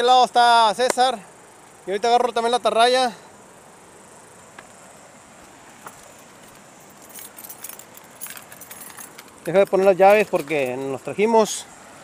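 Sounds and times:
faint steady hiss: 0:00.0 - 0:12.0
small metal pieces jingling: 0:06.8 - 0:11.1.

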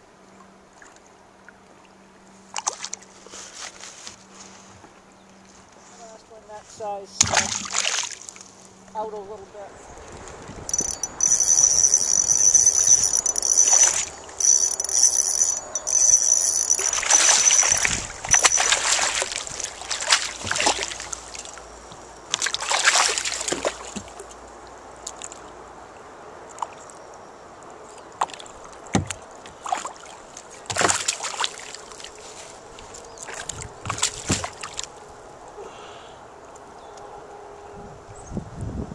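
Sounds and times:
lake water splashing beside boat: 0:00.7 - 0:04.6, 0:07.0 - 0:08.8, 0:09.7 - 0:25.6, 0:27.8 - 0:35.2
insect chirring: 0:10.6 - 0:22.8.

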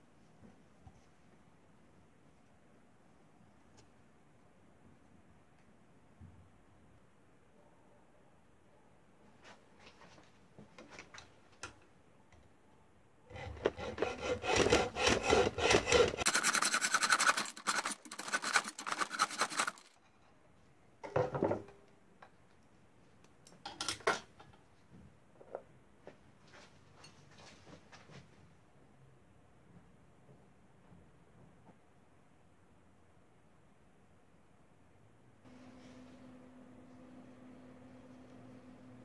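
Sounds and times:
hacksaw cutting tube: 0:13.3 - 0:20.0.

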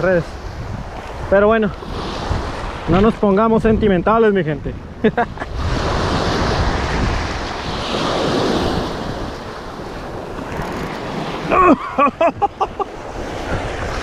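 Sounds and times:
wind buffeting microphone: 0:00.0 - 0:14.0
small waves on rocky shore: 0:05.4 - 0:14.0.

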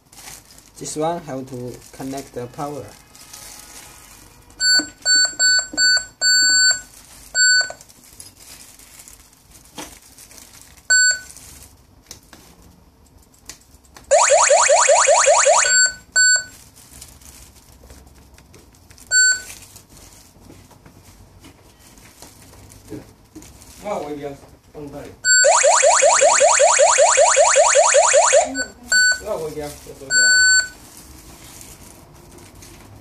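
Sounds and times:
alarm siren rising sweeps: 0:14.1 - 0:16.0, 0:25.3 - 0:28.7.

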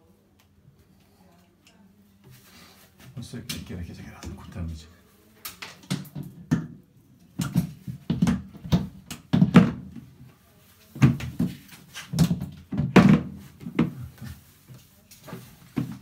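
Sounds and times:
cabinet knocking against tiled wall: 0:07.4 - 0:10.0, 0:12.2 - 0:14.0.

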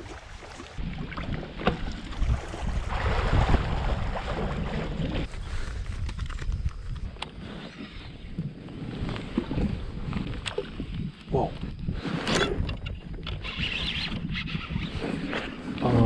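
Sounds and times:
water rushing past kayak: 0:00.0 - 0:05.3
wind buffeting microphone: 0:00.0 - 0:16.0.

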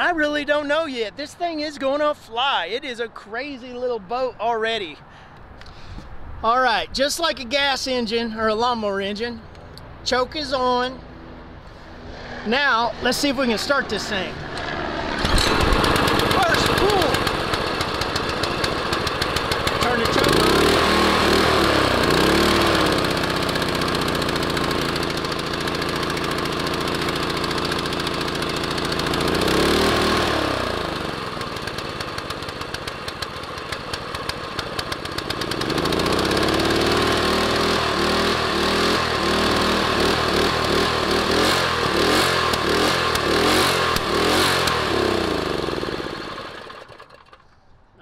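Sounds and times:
small engine revving and idling: 0:12.0 - 0:47.6.

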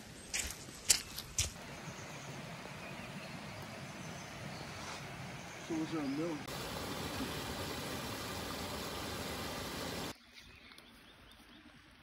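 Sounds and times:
stream splashing over rocks: 0:01.5 - 0:10.1.

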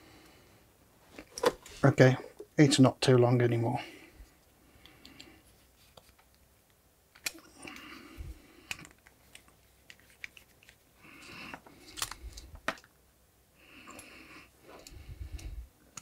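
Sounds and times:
cable rustling: 0:07.2 - 0:12.9.

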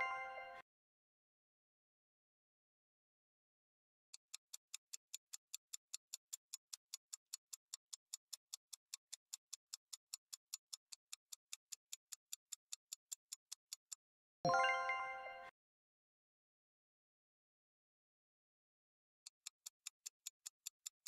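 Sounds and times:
bright multi-tone chime: 0:00.0 - 0:00.6, 0:14.5 - 0:15.5
high timer ticks: 0:04.2 - 0:14.0.

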